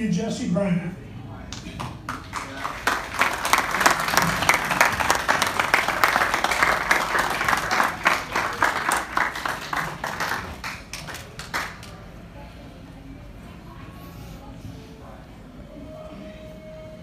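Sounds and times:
audience clapping: 0:01.8 - 0:12.1.

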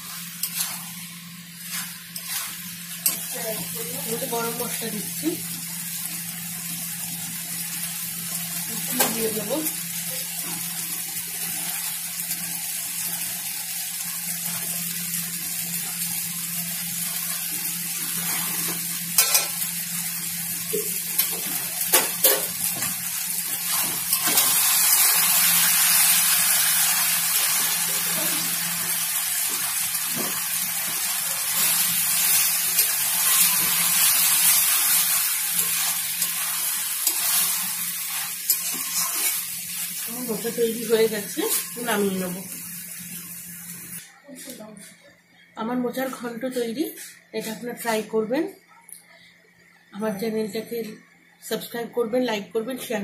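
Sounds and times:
curry sizzling in pan: 0:00.0 - 0:44.0
spatula scraping pan: 0:01.6 - 0:03.7, 0:35.6 - 0:39.5.

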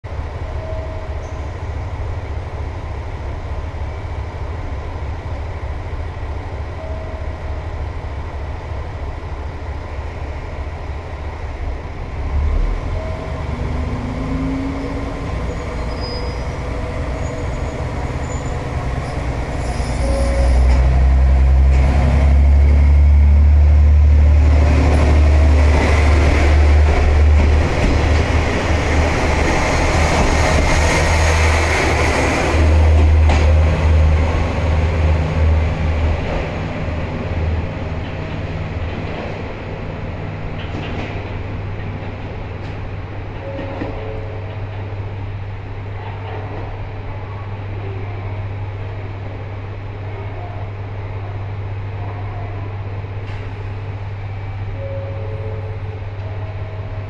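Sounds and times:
diesel railcar engines: 0:00.0 - 0:57.0
train wheels on rails: 0:12.2 - 0:47.0.

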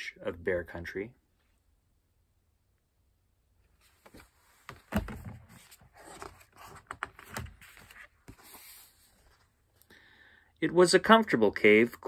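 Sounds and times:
paper pages rustling: 0:03.8 - 0:09.6.

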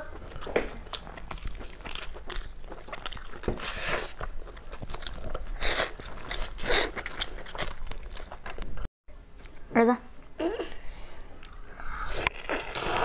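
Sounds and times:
chewing and sucking meat: 0:00.1 - 0:08.6.

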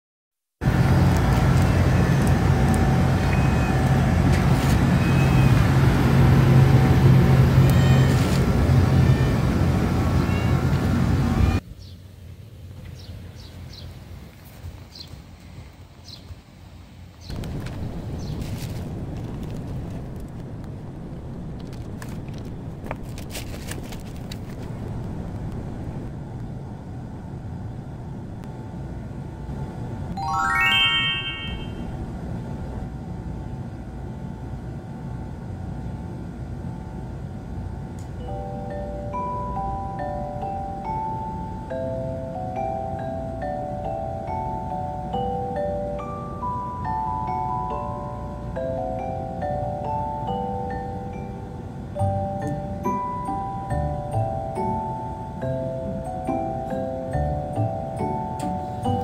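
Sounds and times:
low outdoor rumble: 0:00.6 - 0:30.2
loud low mechanical hum: 0:00.6 - 0:30.3, 0:31.5 - 0:59.0
cat meowing faintly: 0:07.6 - 0:08.4, 0:10.2 - 0:10.7.

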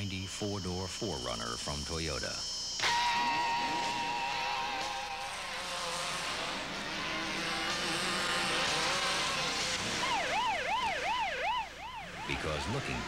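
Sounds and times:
yelping police siren: 0:02.8 - 0:05.9, 0:06.6 - 0:13.0
vehicle rushing past: 0:03.7 - 0:11.2.

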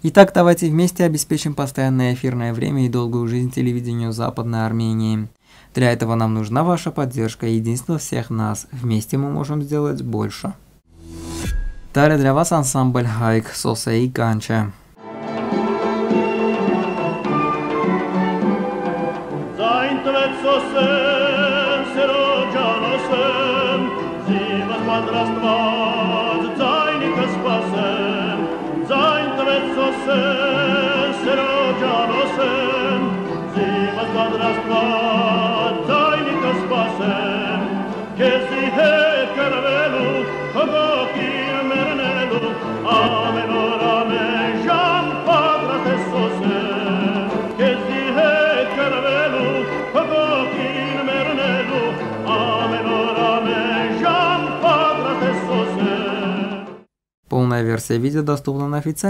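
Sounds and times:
folk instrumental ensemble: 0:15.0 - 0:56.8
man singing with vibrato: 0:19.5 - 0:57.4.

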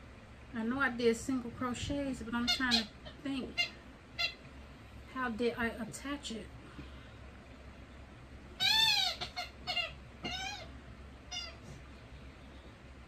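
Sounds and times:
dog's squeaky toy squeaking: 0:08.6 - 0:10.7.

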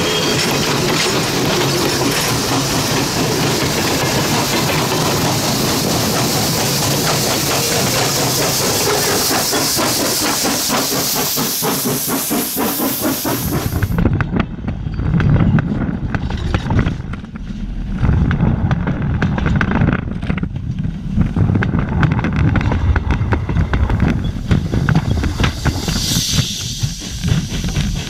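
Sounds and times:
steel wheels clicking on rails: 0:00.0 - 0:17.4, 0:18.2 - 0:28.0
railroad cars rumbling: 0:00.0 - 0:28.0.

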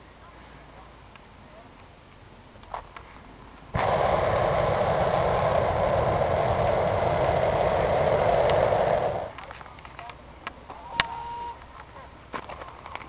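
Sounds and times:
propane burner roaring: 0:03.7 - 0:09.5.

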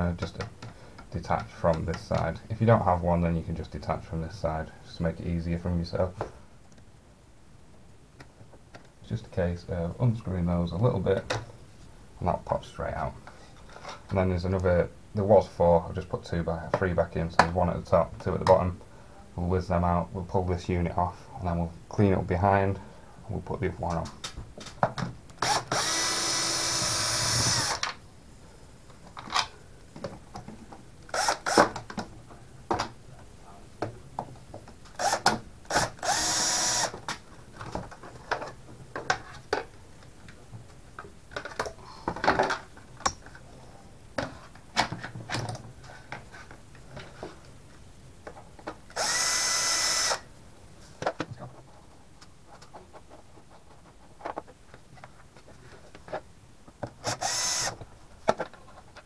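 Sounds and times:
cordless drill running: 0:25.4 - 0:27.8, 0:31.2 - 0:31.6, 0:35.0 - 0:36.9, 0:49.0 - 0:50.2, 0:57.0 - 0:57.8.

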